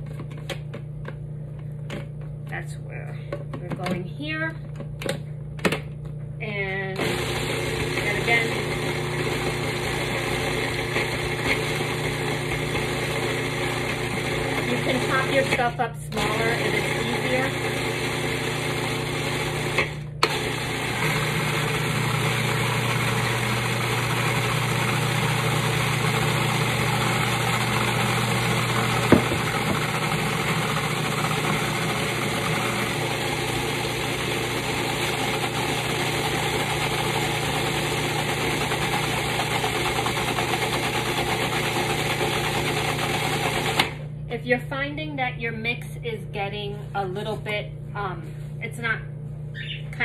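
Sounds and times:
food processor motor running: 6.5 - 44.1.

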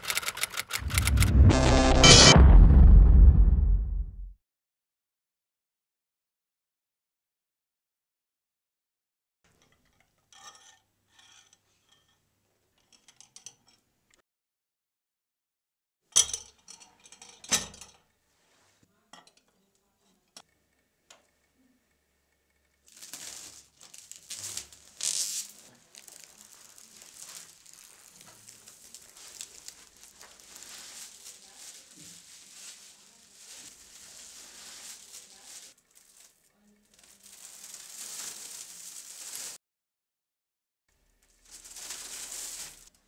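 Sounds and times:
plastic film crinkling: 22.8 - 39.6, 41.2 - 43.0.

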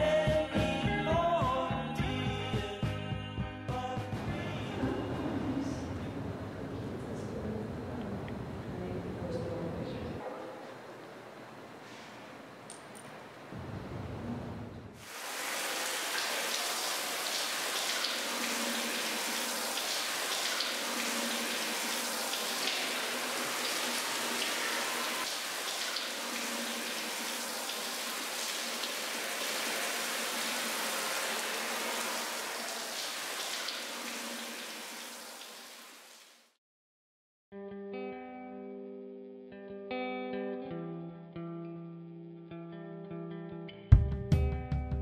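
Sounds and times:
shower spray splashing on tiles: 15.0 - 36.5.

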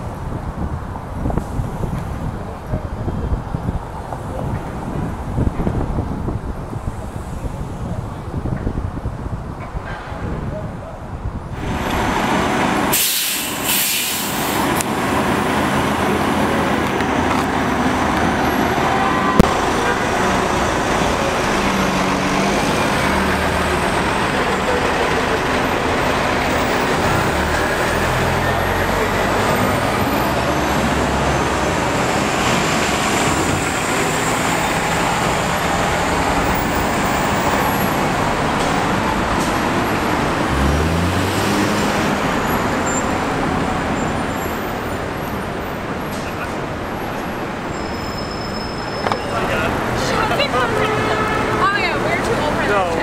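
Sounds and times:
traffic noise: 0.0 - 53.0
bus engine idling and pulling away: 11.5 - 50.8
short hiss: 12.9 - 14.6.

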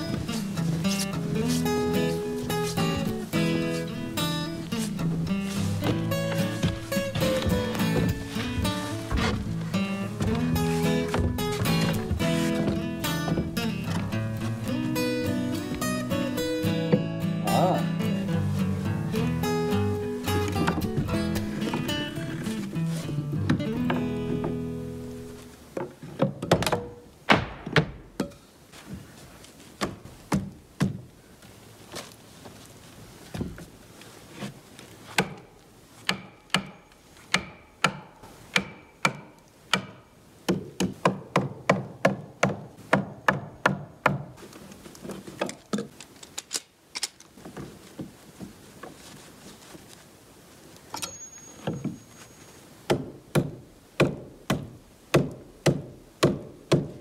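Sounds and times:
hammer striking wood: 36.1 - 44.4, 52.9 - 57.0.

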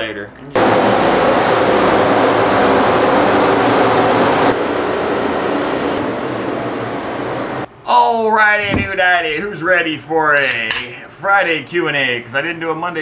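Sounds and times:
pressure washer water jet hiss: 0.6 - 4.5
pressure washer drone: 0.6 - 7.7.

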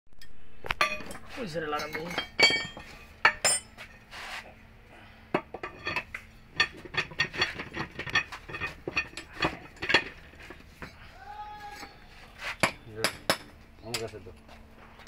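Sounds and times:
metal tools clinking on metal: 0.8 - 3.8, 5.6 - 10.5.

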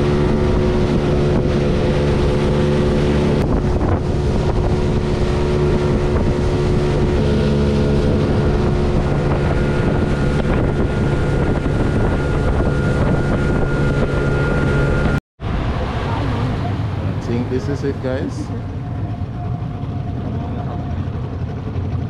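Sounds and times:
outboard motor running: 0.0 - 22.0
wind buffeting microphone: 0.0 - 22.0.

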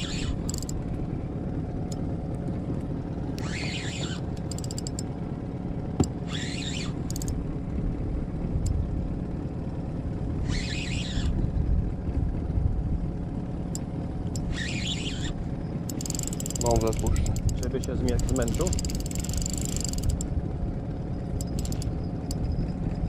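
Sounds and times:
fishing reel drag buzzing: 0.0 - 0.8, 3.3 - 5.1, 6.2 - 7.4, 10.4 - 11.4, 14.4 - 20.2, 21.4 - 22.7
steady low rumble: 0.0 - 23.0.

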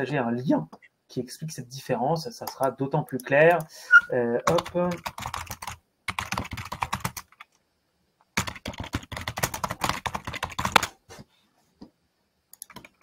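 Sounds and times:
typing on computer keyboard: 4.5 - 7.6, 8.4 - 10.9, 12.5 - 13.0.

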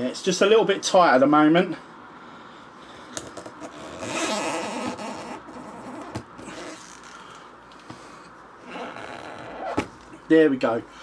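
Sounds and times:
cork squeaking against metal rod: 3.6 - 7.0, 8.7 - 9.9.

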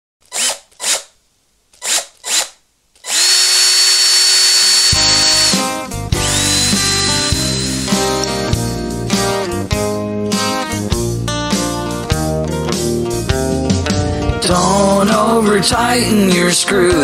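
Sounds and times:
power drill whining: 0.3 - 1.1, 1.8 - 8.4
music: 4.9 - 17.0.

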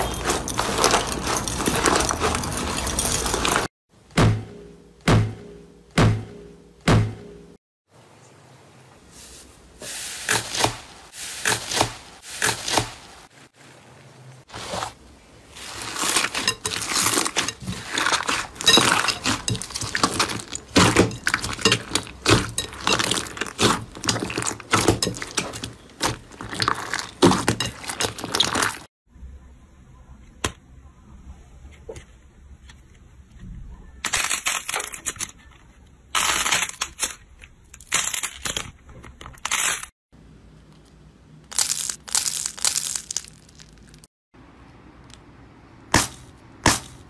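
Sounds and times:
slime clicking and crackling: 15.7 - 28.8.

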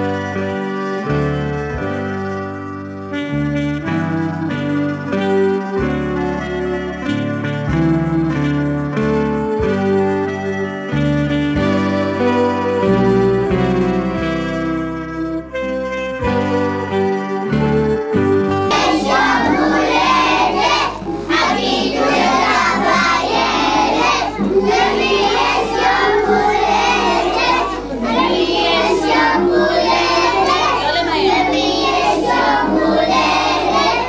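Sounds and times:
children singing over music: 0.0 - 2.8, 7.8 - 15.4, 18.4 - 34.0
horn-like instrumental tune: 0.0 - 34.0.

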